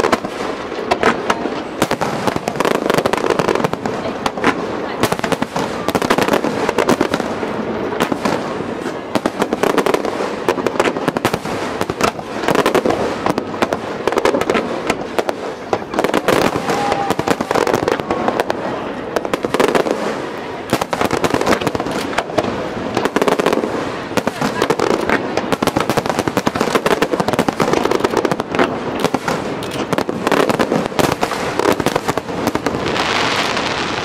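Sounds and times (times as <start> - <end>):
firework crackling: 0.0 - 34.0
firework shells bursting: 19.2 - 33.6.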